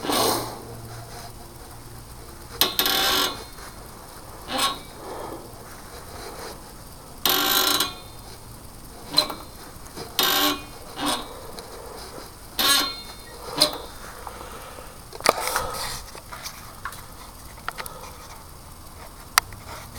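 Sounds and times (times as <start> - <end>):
lever mechanism creaking: 2.5 - 16.3.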